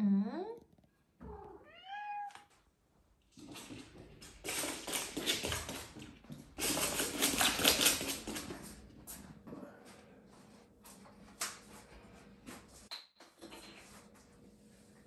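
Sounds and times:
cat meowing: 1.2s - 2.5s
paws scrabbling on hard floor: 3.2s - 9.6s.

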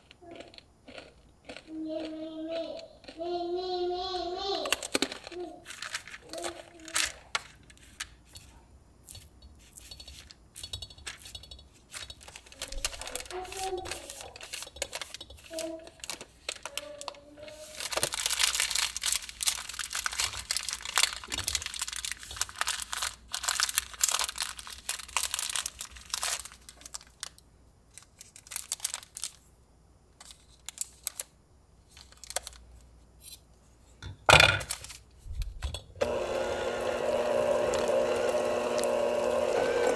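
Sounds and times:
parchment paper crinkling: 4.5s - 8.6s, 11.0s - 29.5s, 30.2s - 32.9s, 34.7s - 35.2s.

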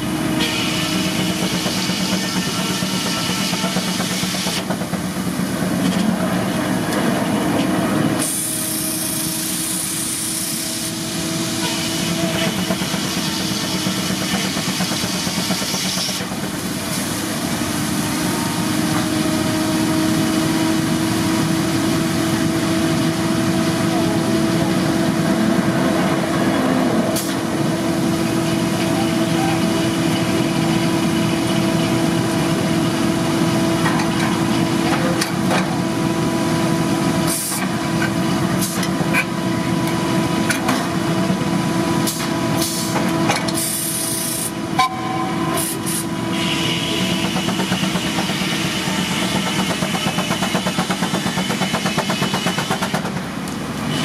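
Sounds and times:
compressed air hisses: 8.2s - 11.0s.

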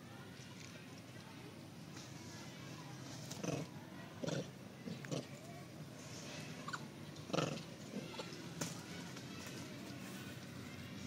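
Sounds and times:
monkeys making sharp noises: 3.2s - 5.5s, 6.5s - 10.2s.

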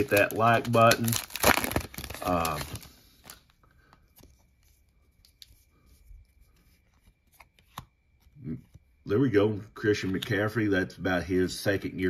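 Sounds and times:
trading cards rustling: 0.0s - 9.0s.

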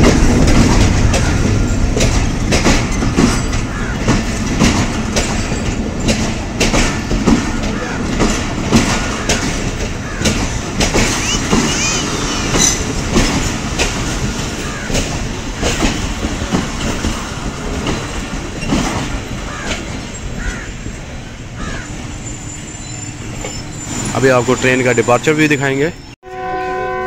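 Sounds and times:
knocks and clatter: 0.0s - 11.7s, 12.5s - 20.7s
train low rumble: 0.0s - 27.0s
short squeaks: 11.0s - 12.9s, 22.0s - 26.2s.

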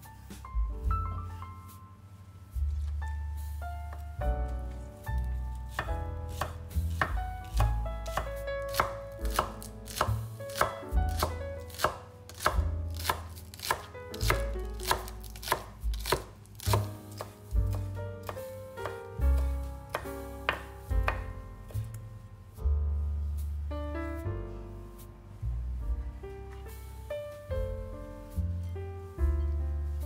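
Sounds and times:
soft background music: 0.0s - 30.0s
knife chopping on cutting board: 5.7s - 21.9s.

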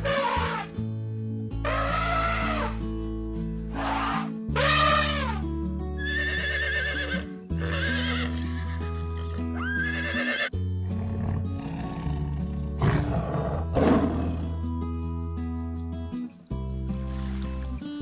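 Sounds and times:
horse whinnying: 0.0s - 0.7s, 1.6s - 2.8s, 3.8s - 5.4s, 6.0s - 11.9s
background music: 0.0s - 18.0s.

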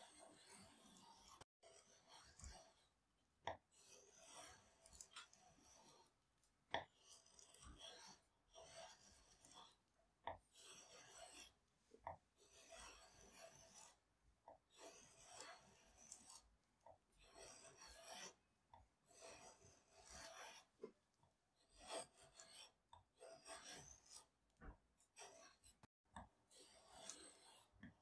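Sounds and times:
draw knife shaving wood: 0.1s - 2.9s, 3.8s - 6.1s, 6.9s - 9.8s, 10.5s - 11.6s, 12.4s - 14.0s, 14.7s - 16.5s, 17.2s - 18.4s, 19.1s - 20.8s, 21.6s - 24.3s, 25.1s - 25.8s, 26.5s - 27.9s.

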